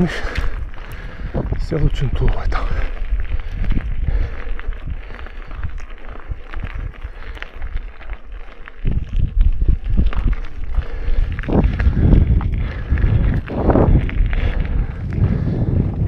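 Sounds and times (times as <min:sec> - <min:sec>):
bike crunching and rattling: 0:00.0 - 0:16.0
low rumble: 0:08.9 - 0:16.0.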